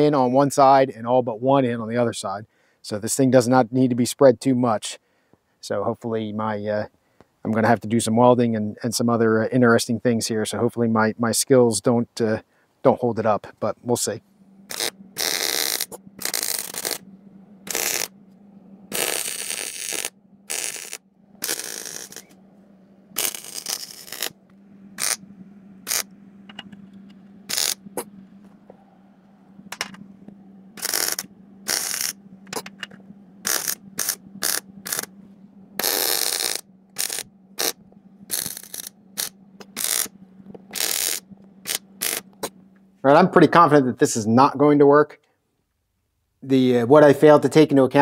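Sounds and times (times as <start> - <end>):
steady low hum: 0.0 - 48.0
crackling welding arc bursts: 14.0 - 18.2, 18.9 - 22.4, 23.1 - 25.2, 25.8 - 26.7, 27.4 - 28.6, 30.8 - 35.1, 35.8 - 42.6.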